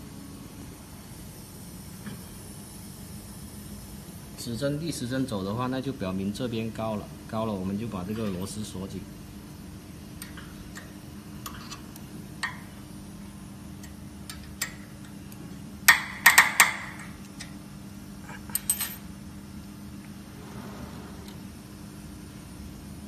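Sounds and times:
low hum: 20.0s - 22.0s.

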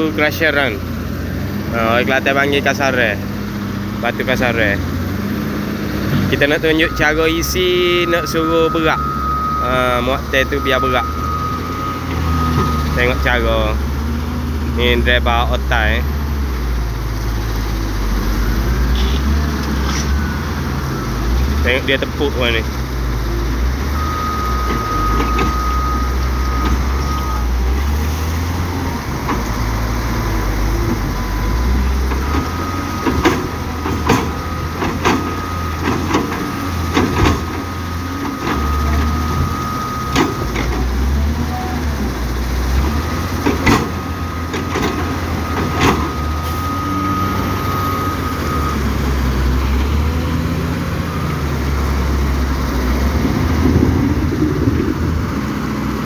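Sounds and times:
heavy diesel engines under load: 0.0s - 56.0s
high steady tone: 6.4s - 13.8s.

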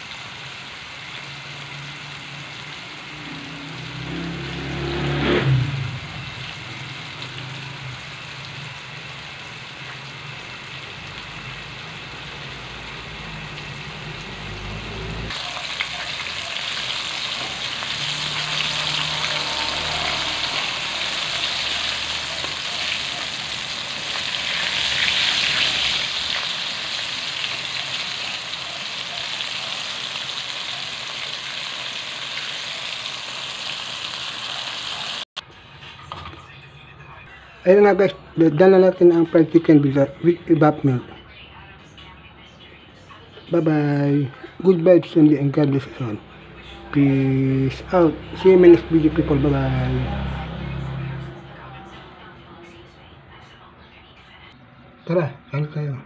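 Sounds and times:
chicken deep-frying in oil: 0.0s - 35.3s, 46.9s - 51.0s.

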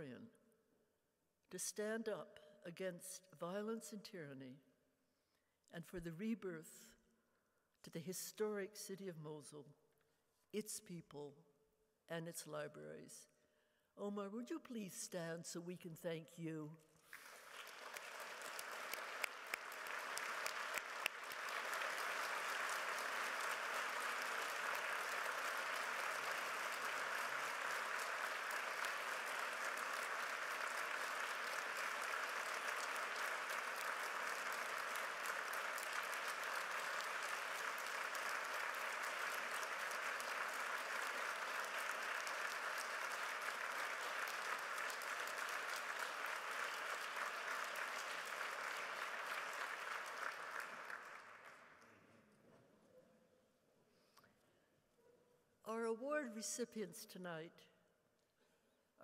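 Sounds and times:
audience applauding: 17.1s - 52.0s.

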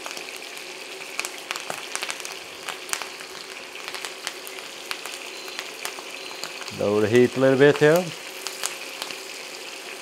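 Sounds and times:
fat crackling and popping: 0.0s - 10.0s
meat sizzling in butter: 0.0s - 10.0s.

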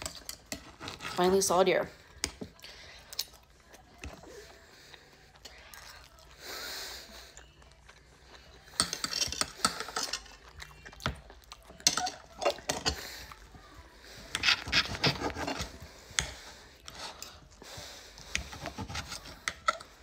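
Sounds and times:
faint chewing: 1.9s - 20.0s
knife and fork cutting steak: 8.6s - 13.5s, 14.2s - 17.4s.

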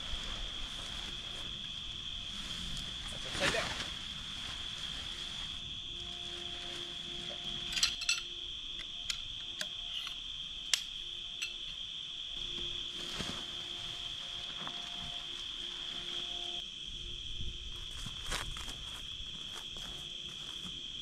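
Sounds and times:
crickets and night insects chirping: 0.0s - 21.0s
tent gear clicking and clinking: 7.3s - 11.7s.

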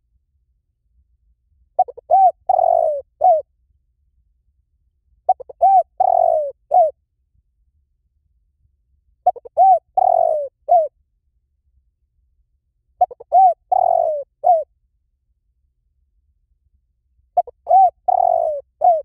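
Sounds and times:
dove cooing: 1.8s - 3.5s, 5.3s - 7.0s, 9.2s - 10.9s, 13.0s - 14.7s, 17.4s - 19.0s.

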